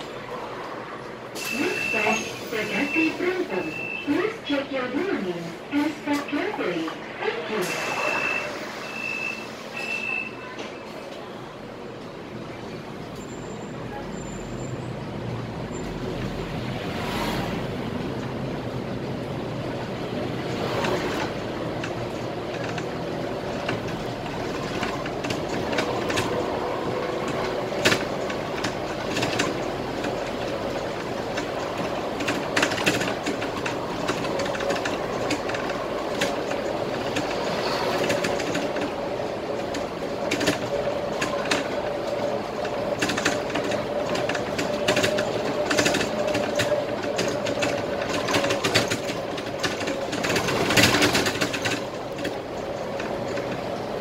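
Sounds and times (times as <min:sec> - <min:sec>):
bus engine hum: 0:00.0 - 0:54.0.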